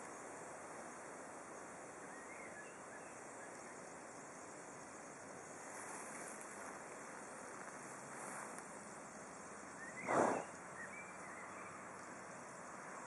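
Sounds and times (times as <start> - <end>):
faint steady hiss: 0.0 - 13.0
faint chirps: 8.9 - 12.8.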